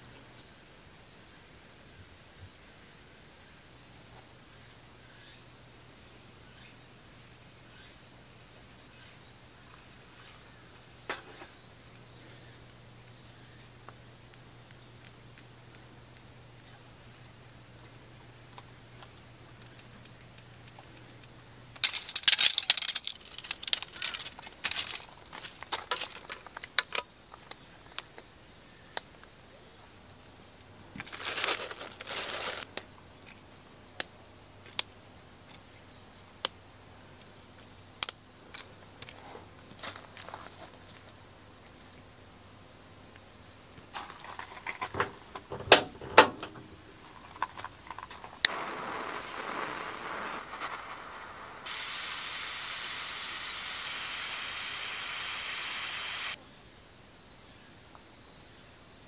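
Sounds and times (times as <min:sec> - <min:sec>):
rustling and crinkling handling noise: 0:21.8 - 0:26.7, 0:31.0 - 0:32.8.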